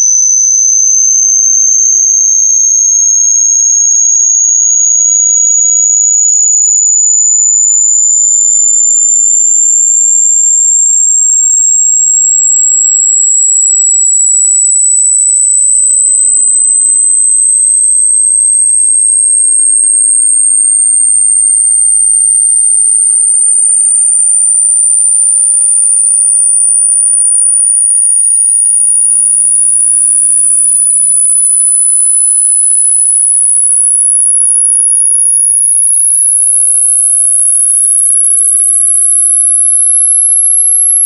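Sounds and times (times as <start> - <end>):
high sine tone gliding upward: 0.0 - 41.0.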